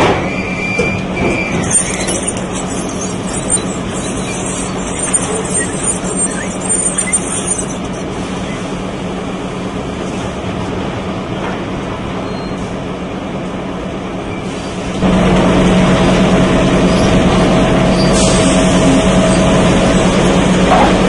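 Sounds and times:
bark scraping and rumbling: 0:00.0 - 0:08.8, 0:16.8 - 0:21.0
machine hum: 0:00.8 - 0:09.8.

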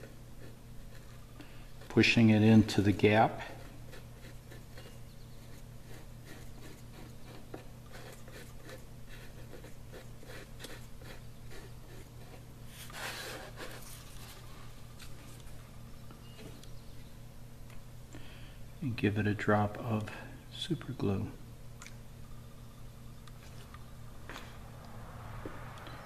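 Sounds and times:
steady low hum: 0:00.0 - 0:26.0
fingertip rubbing on wood: 0:03.4 - 0:14.1.

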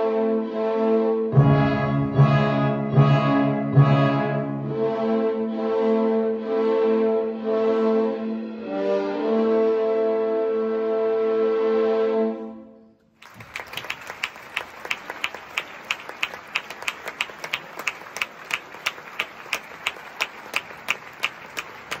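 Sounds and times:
audience applause: 0:13.2 - 0:22.0
sharp regular clap: 0:13.2 - 0:22.0.

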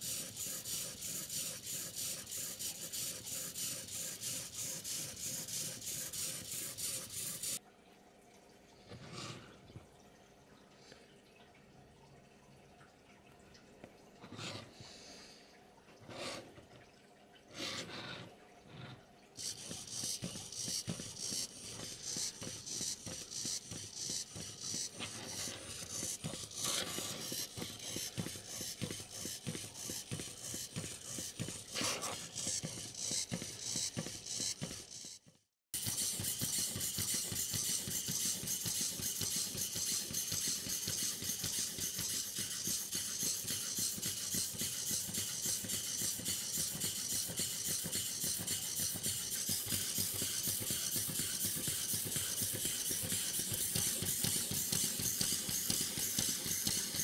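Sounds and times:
servos clicking and buzzing: 0:19.4 - 0:57.0.

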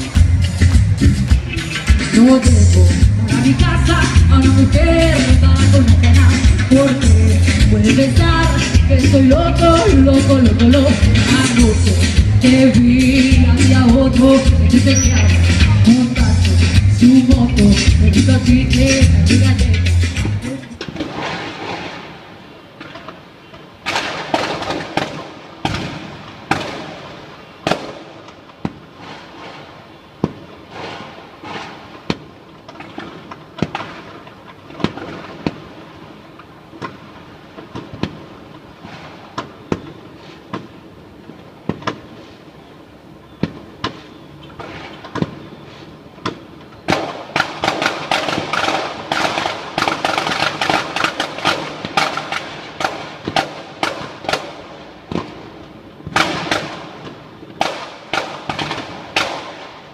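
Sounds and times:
dense firecracker crackling: 0:20.0 - 0:59.9
firework bangs: 0:20.8 - 0:42.4, 0:43.4 - 0:59.9.

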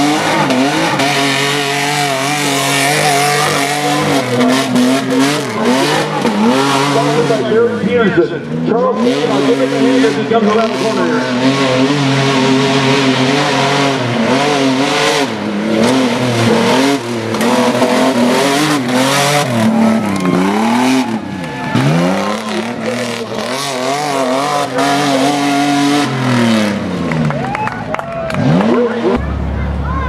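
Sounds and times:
truck engine revving: 0:00.0 - 0:30.0.

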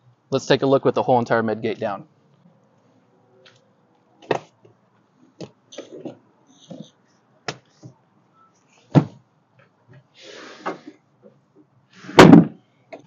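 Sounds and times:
heavy thump: 0:12.1 - 0:12.6.

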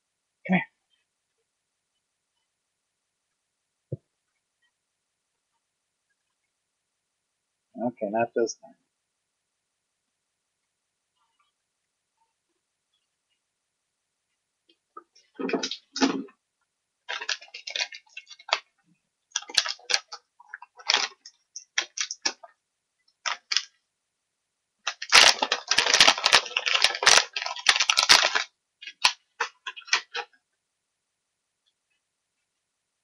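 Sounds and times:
dog crunching a hard biscuit: 0:19.4 - 0:22.4, 0:24.9 - 0:30.2.

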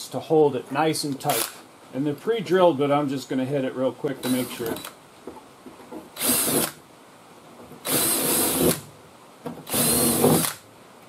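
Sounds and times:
drill through sheet metal: 0:04.2 - 0:04.8, 0:06.2 - 0:06.8, 0:07.8 - 0:08.8, 0:09.7 - 0:10.6.

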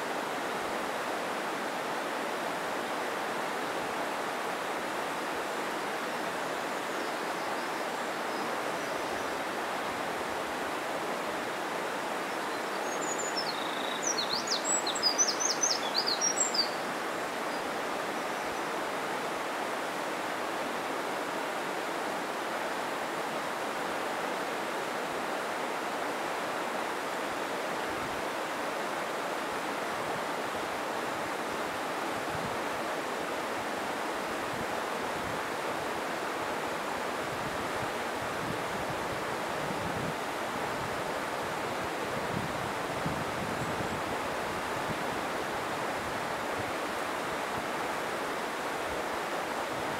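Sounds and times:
mountain stream rushing: 0:00.0 - 0:49.9
bird chirping: 0:12.4 - 0:16.8.

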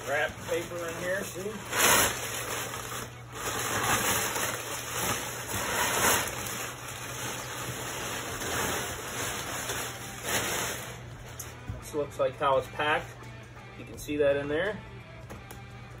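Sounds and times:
packing paper crumpling and rustling: 0:00.0 - 0:11.5.

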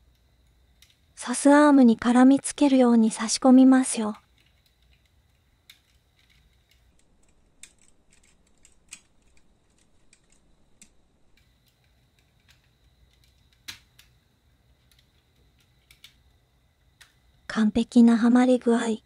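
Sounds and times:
plastic parts clicking together: 0:04.3 - 0:16.3.

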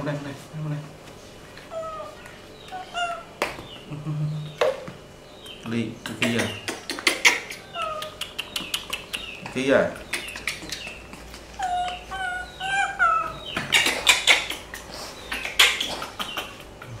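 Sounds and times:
baby monkey crying: 0:01.7 - 0:03.4, 0:06.1 - 0:08.2, 0:10.0 - 0:16.7.

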